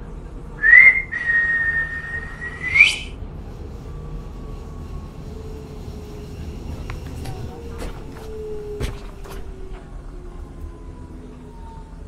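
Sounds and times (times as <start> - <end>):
person whistling: 0.6 - 3.2.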